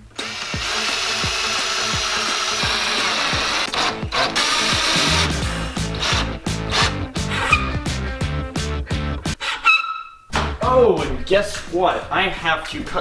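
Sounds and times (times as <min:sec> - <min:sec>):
cordless drill driving screw: 0:00.2 - 0:05.3, 0:05.9 - 0:07.7.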